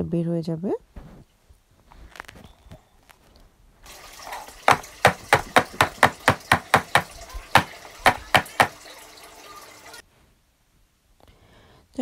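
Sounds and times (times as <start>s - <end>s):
metal tin knocking on worktop: 4.7s - 8.8s.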